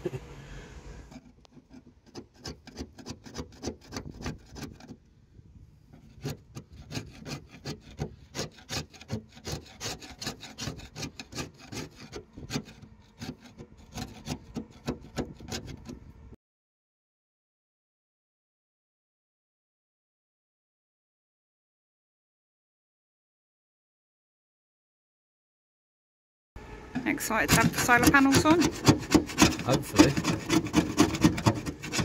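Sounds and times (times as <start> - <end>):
scraper blade scraping metal roof: 1.1 - 5.0, 5.9 - 16.2, 27.0 - 32.0.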